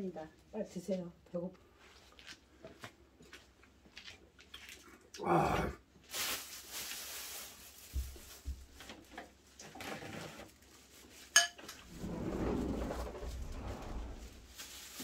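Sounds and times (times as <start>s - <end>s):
cutlery and dishes clinking: 11.3s - 11.8s
short rush of noise: 11.8s - 14.5s.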